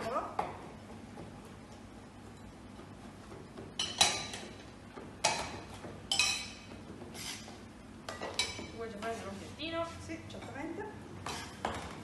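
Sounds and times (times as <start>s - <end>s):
utensils clinking against a dish: 3.8s - 4.6s, 5.2s - 7.5s, 8.1s - 9.2s.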